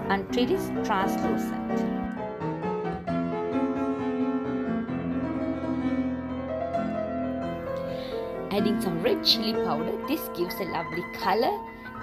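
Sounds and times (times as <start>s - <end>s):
keyboard background music: 0.0s - 12.0s.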